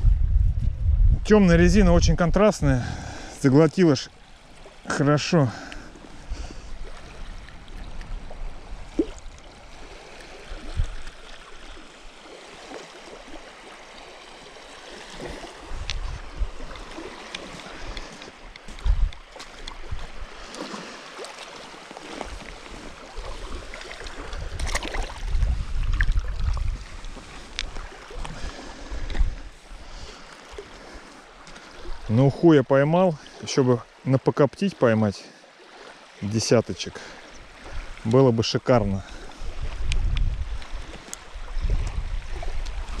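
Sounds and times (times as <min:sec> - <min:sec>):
wind buffeting microphone: 0:00.0 - 0:03.3, 0:06.1 - 0:11.1, 0:15.3 - 0:20.5, 0:22.2 - 0:31.0, 0:38.8 - 0:43.0
water washing at shoreline: 0:01.2 - 0:43.0.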